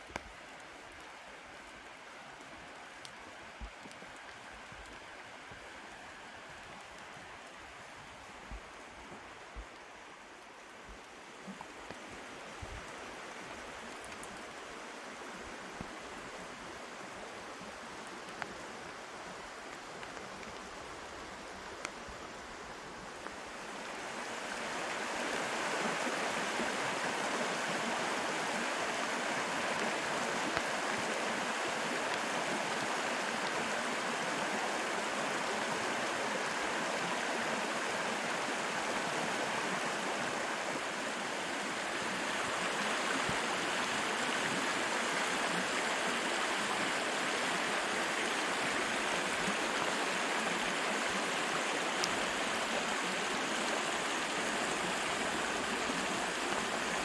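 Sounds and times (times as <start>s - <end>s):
water drips: 0.0s - 14.7s
creek flowing over rocks: 0.0s - 57.0s
rain hiss: 0.0s - 57.0s.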